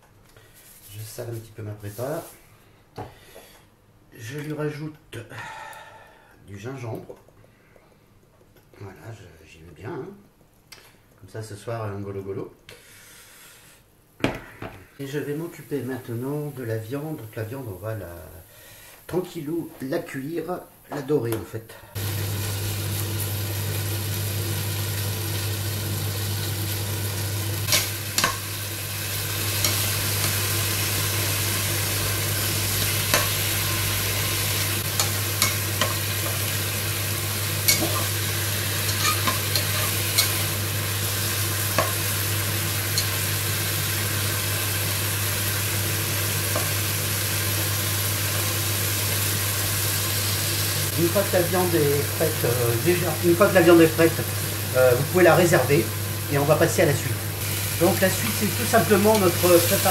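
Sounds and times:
chicken sizzling in pot: 22.0 - 59.9.

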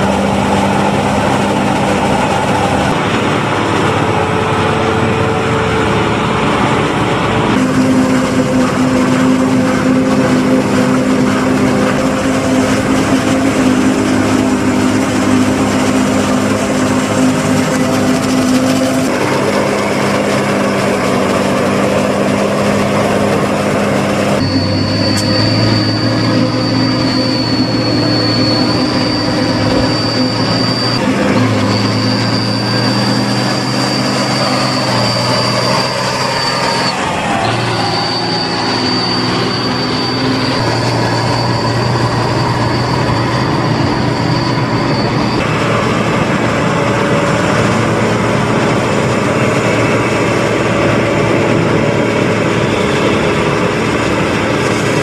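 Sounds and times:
drone of diesel engines and chopper: 0.0 - 55.0
steady high whine: 0.0 - 55.0.

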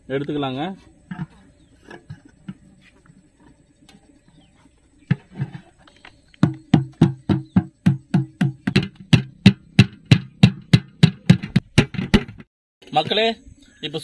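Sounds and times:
knocking on metal pot: 6.4 - 12.5.

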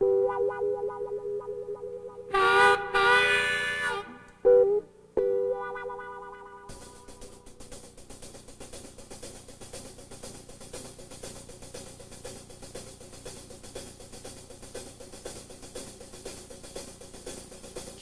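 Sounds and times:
snare drum strokes: 6.7 - 18.0.

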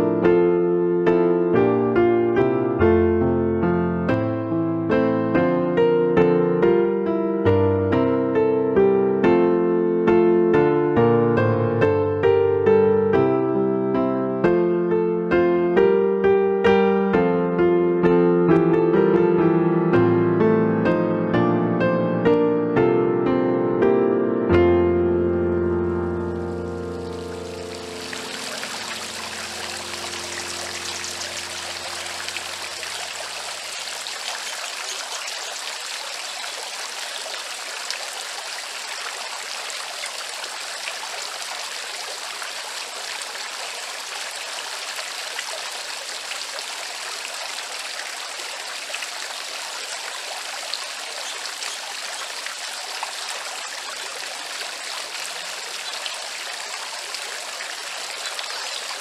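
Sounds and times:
fountain water splashing and trickling: 26.0 - 59.0.

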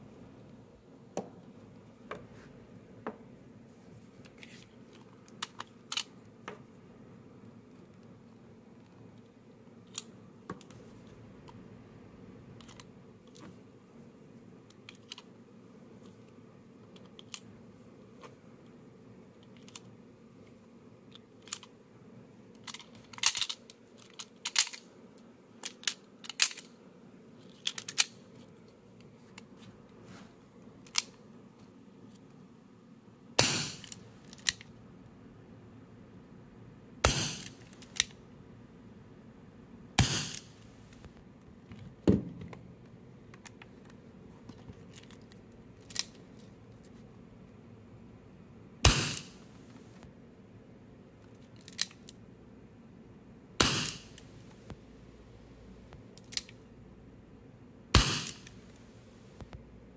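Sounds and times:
small metallic clicks: 21.1 - 21.7, 22.6 - 26.7, 27.4 - 28.2, 43.4 - 46.2, 51.2 - 52.2, 56.2 - 56.6.

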